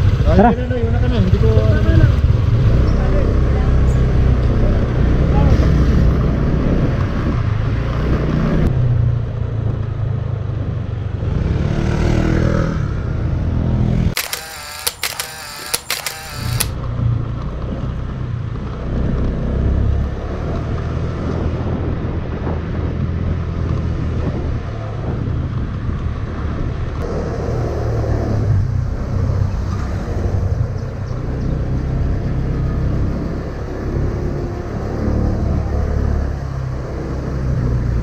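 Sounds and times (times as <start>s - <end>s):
motorcycle engine rumbling: 0.0s - 6.9s.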